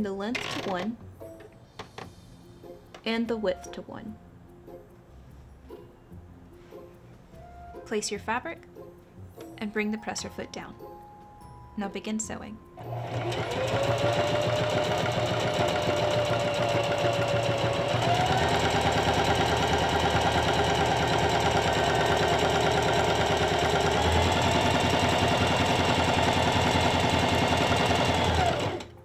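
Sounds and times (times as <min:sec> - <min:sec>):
sewing machine stitching: 0:12.8 - 0:29.0.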